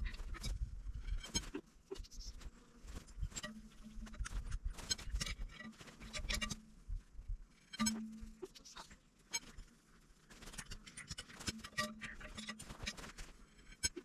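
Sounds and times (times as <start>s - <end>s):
steady low tone: 6.1s - 8.8s.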